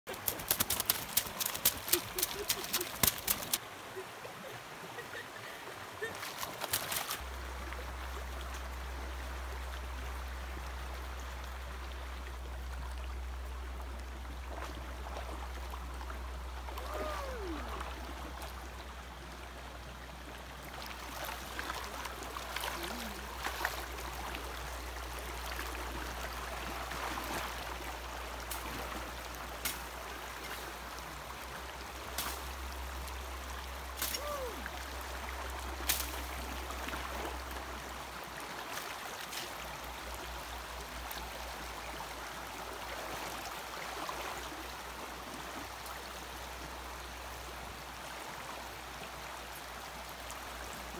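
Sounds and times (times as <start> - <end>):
knocks and splashes in water: 0.1 - 3.6
stream flowing over rocks: 0.1 - 50.9.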